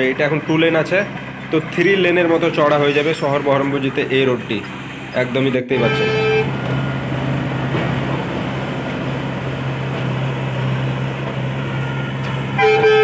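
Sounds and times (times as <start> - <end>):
excavator diesel engine running: 0.0 - 13.0
traffic noise: 0.0 - 13.0
vehicle horn: 5.7 - 6.7, 12.5 - 13.0.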